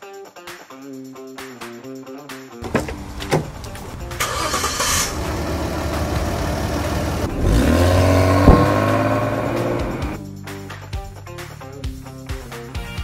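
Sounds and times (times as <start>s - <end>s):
car engine revving with loud exhaust: 2.6s - 10.2s
exhaust bang: 2.6s - 10.2s.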